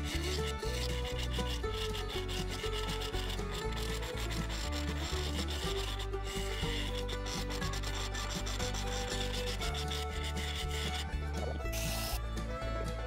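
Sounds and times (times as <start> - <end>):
lathe humming: 0.0 - 12.2
tool scraping spinning wood: 0.0 - 13.0.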